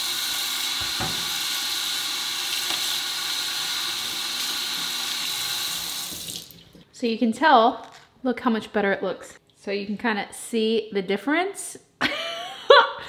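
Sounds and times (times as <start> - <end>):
faucet water splashing into sink: 0.0 - 6.8.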